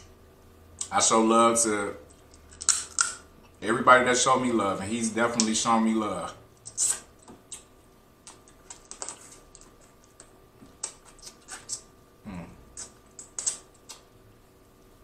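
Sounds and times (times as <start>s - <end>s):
wet smacking and sucking: 6.6s - 11.9s, 12.7s - 14.1s.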